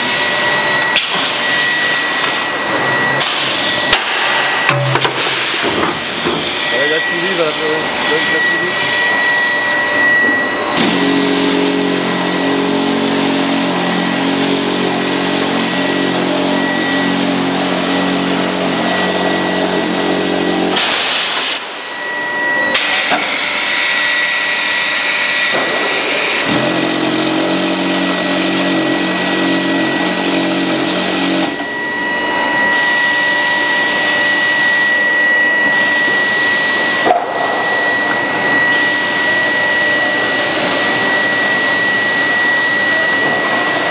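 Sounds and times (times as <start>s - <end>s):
factory machinery running: 0.0s - 43.9s
high machine whine: 0.0s - 43.9s
low motor hum: 4.6s - 20.8s, 25.5s - 43.9s.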